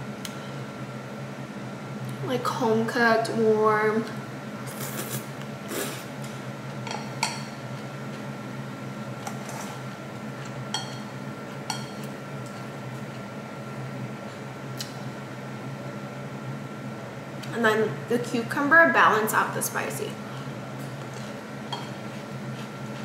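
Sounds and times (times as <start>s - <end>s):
low appliance hum: 0.0s - 23.0s
utensils clinking against bowl: 10.7s - 12.6s, 21.7s - 22.0s.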